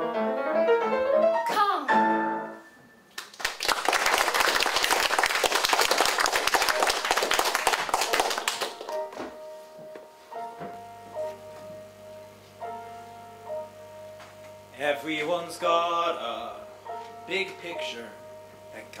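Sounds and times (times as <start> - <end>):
piano: 0.0 - 19.0
audience applause: 3.2 - 9.0.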